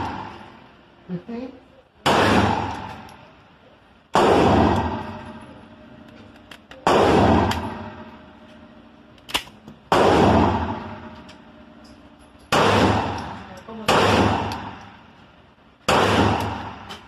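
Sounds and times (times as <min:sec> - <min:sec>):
pistol gunshots echoing: 0:02.0 - 0:03.1, 0:04.1 - 0:05.4, 0:06.8 - 0:08.2, 0:09.9 - 0:11.2, 0:12.5 - 0:15.0, 0:15.8 - 0:17.0
pistol handling click: 0:09.2 - 0:09.8.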